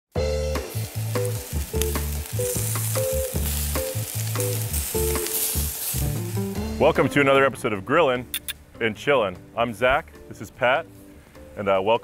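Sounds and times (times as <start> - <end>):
upbeat music with bass and drums: 0.1 - 12.0
hot dogs sizzling on a grill: 0.2 - 7.0.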